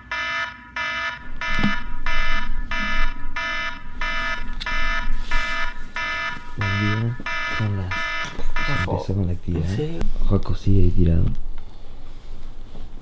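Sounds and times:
electronic alarm beeping: 0:00.0 - 0:09.0.

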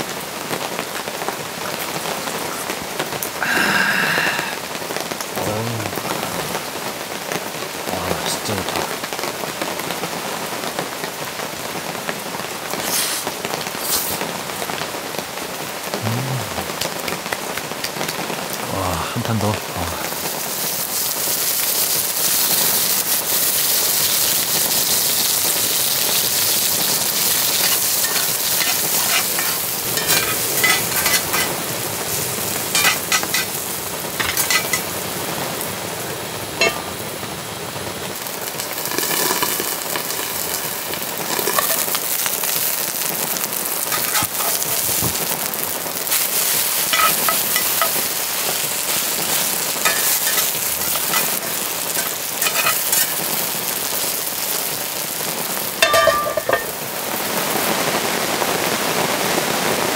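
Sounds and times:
food sizzling in a pan: 0:00.0 - 0:59.9
utensils knocking on a pan: 0:27.5 - 0:31.5, 0:32.7 - 0:33.5, 0:34.2 - 0:34.8, 0:36.6 - 0:36.9, 0:46.9 - 0:48.0, 0:49.8 - 0:53.2, 0:55.8 - 0:56.8.

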